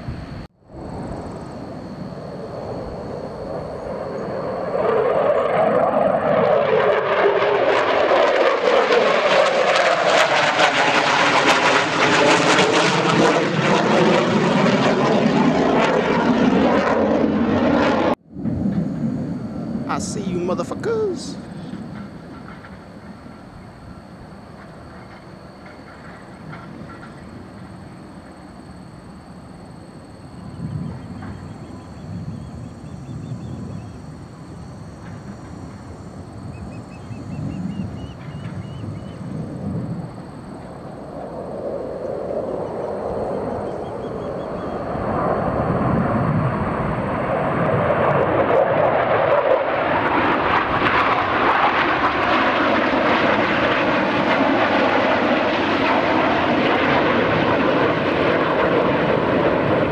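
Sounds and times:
jet flying past: 0.0 - 59.9
bird chirping: 36.5 - 39.3, 43.5 - 44.8.

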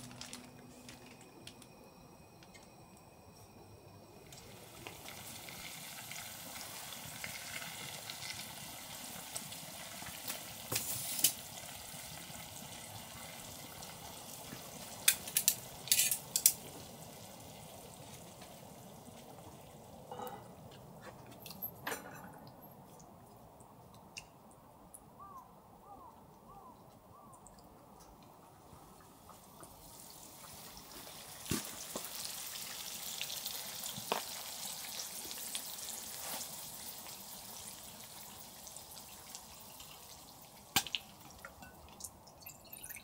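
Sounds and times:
food sizzling in a frying pan: 4.2 - 20.0, 29.3 - 42.0.

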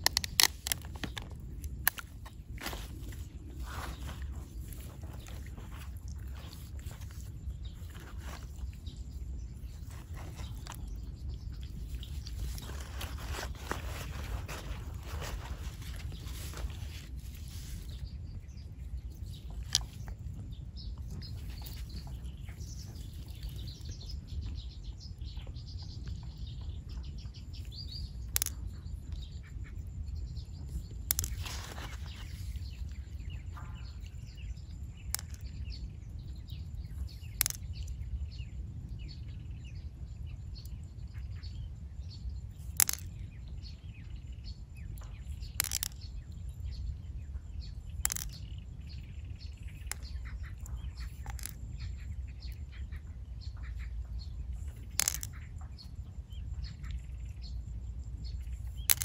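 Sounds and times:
pearls clicking into shell: 0.0 - 2.2, 27.8 - 28.8, 30.8 - 33.0, 35.0 - 35.9, 36.8 - 38.0, 42.5 - 43.3, 45.0 - 46.4, 48.0 - 49.0, 49.7 - 51.8, 54.7 - 55.5, 58.6 - 59.0
faint bird chirps: 0.3 - 59.0.

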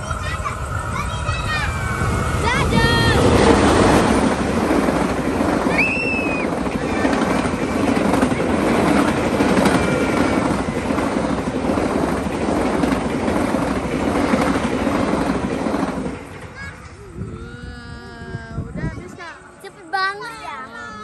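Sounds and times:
train wheels rumbling on rails: 0.0 - 20.3
high squeal: 5.7 - 7.1.

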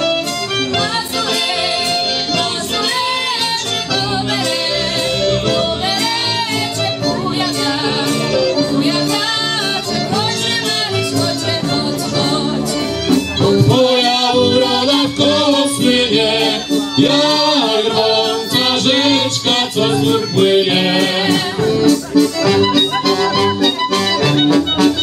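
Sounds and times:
accordion: 0.0 - 25.0
double bass: 0.0 - 25.0
violins: 0.0 - 25.0
women singing: 0.7 - 21.7.

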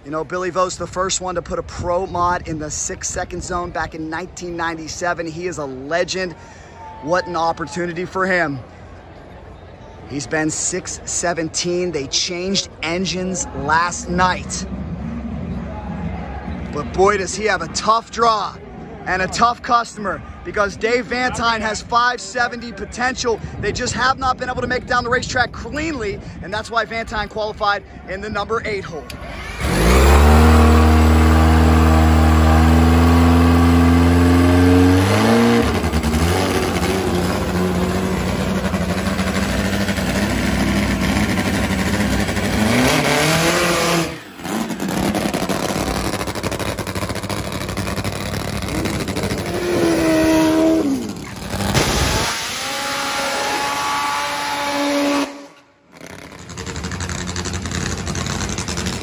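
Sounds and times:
motorcycle engines revving: 28.8 - 59.0.

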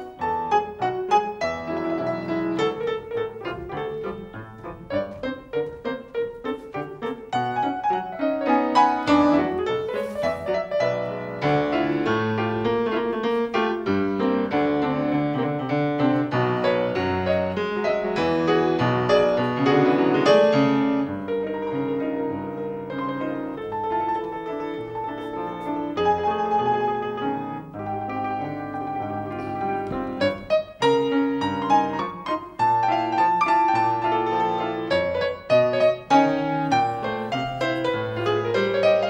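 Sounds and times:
solo piano playing: 0.0 - 39.0.

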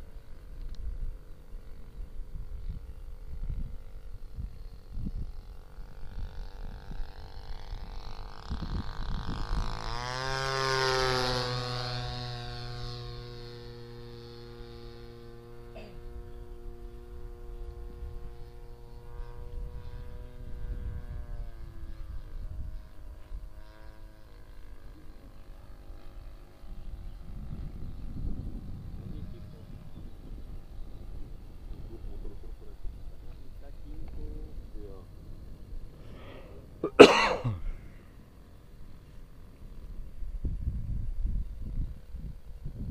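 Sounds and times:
model plane engine and propeller: 0.0 - 42.9.

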